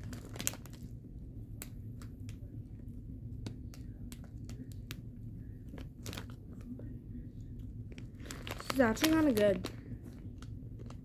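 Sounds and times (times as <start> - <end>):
crisp snacks being chewed: 0.0 - 0.9, 8.0 - 11.0
foil snack bag rustling: 0.0 - 0.9, 5.7 - 6.4, 8.0 - 11.0
steady low hum: 0.0 - 11.0.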